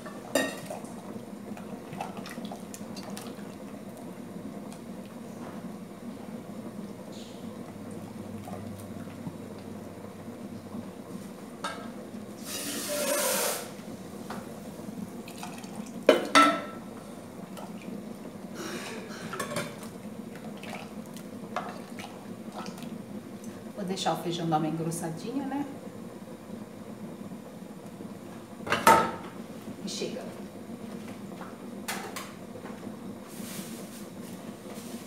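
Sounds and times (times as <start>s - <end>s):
pot of beans bubbling: 0.0s - 24.9s
loud hiss: 12.4s - 13.8s.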